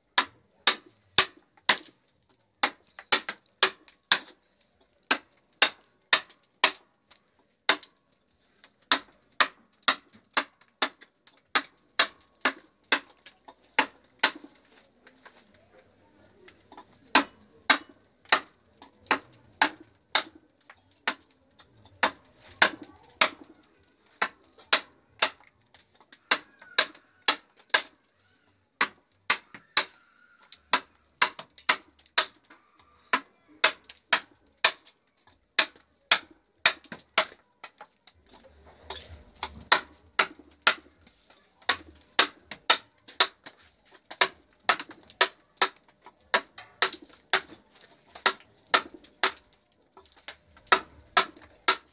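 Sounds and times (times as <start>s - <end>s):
mallet striking chisel into wood: 17.1s - 18.5s, 39.4s - 40.9s, 41.7s - 43.4s, 50.6s - 51.9s.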